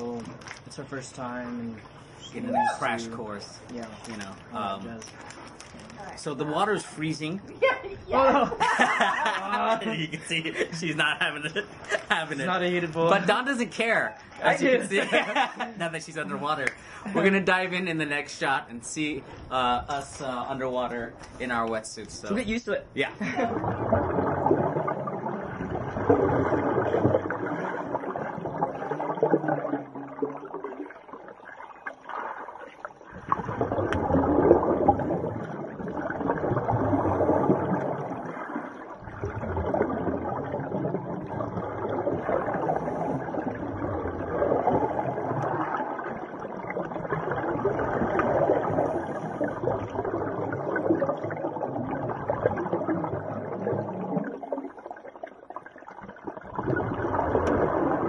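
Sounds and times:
underwater exhaled bubbles: 23.3s - 58.0s.

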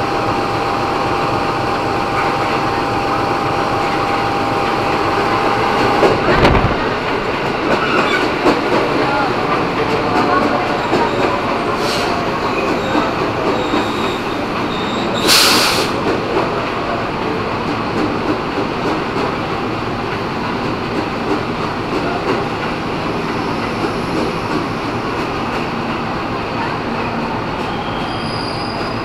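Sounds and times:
train wheels clacking and squealing: 1.9s - 29.0s
short loud hiss: 15.3s - 16.0s.

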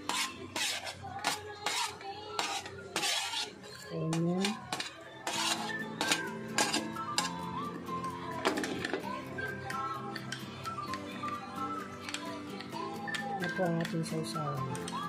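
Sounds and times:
metal spoon scraping and clinking: 0.0s - 7.5s, 12.0s - 15.0s
background music with steady beat: 0.0s - 15.0s.

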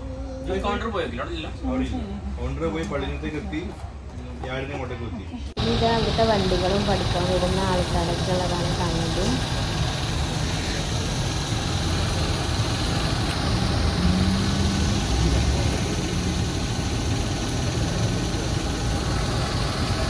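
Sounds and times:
car engines idling: 5.6s - 20.0s.

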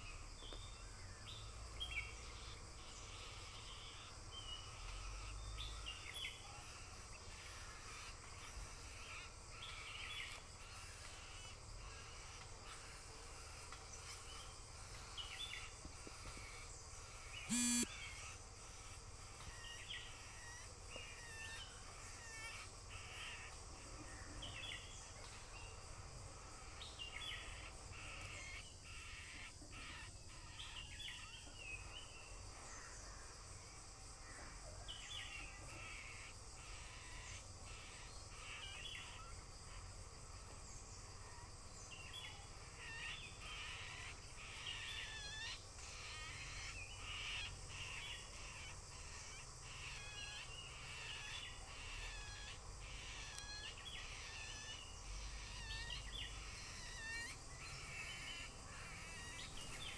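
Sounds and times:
harsh cawing bird calls: 2.4s - 19.4s.

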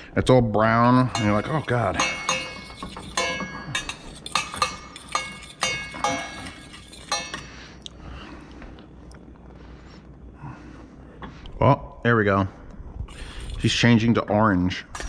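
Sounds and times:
fork clinking on metal pot: 0.9s - 7.5s.

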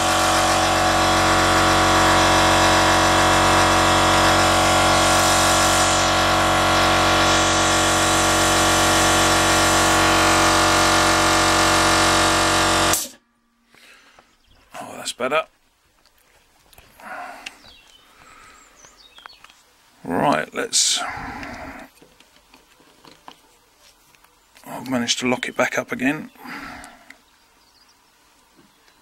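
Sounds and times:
air compressor motor humming: 0.0s - 13.3s, 21.0s - 21.9s.

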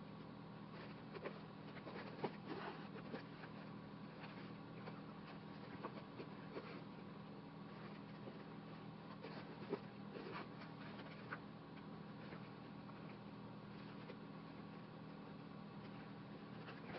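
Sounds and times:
low steady hum: 0.0s - 16.9s
needle and thread through fabric: 0.7s - 7.1s.

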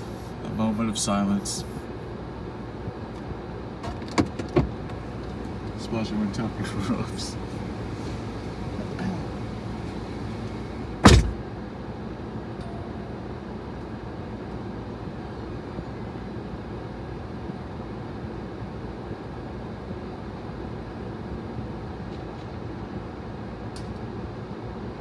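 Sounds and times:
low cabin hum: 0.0s - 25.0s
car door shutting: 3.8s - 5.0s, 10.9s - 11.4s.

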